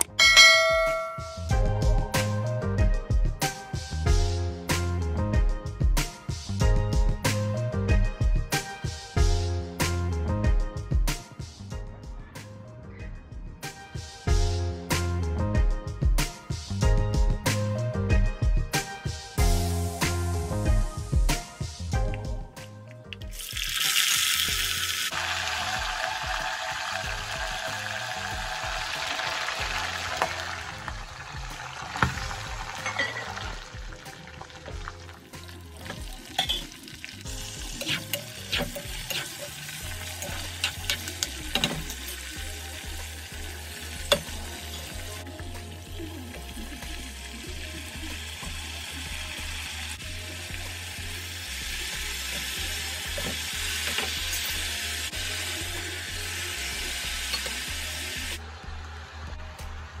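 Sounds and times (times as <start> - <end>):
vegetables sizzling in hot oil: 23.3 - 45.2, 46.5 - 58.4.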